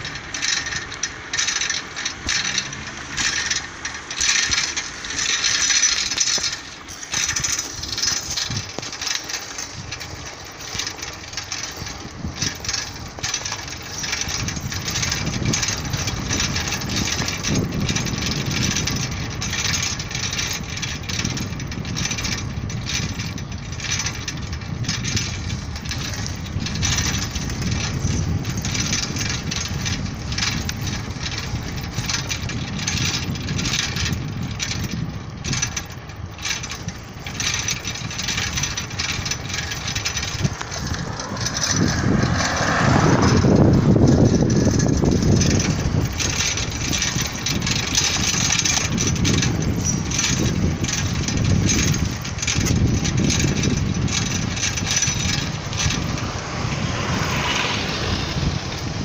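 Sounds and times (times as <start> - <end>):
road and traffic noise: 0.0 - 59.0
small knocks and rattles: 0.0 - 59.0
vehicle passing: 2.3 - 8.0, 39.0 - 46.5, 55.2 - 59.0.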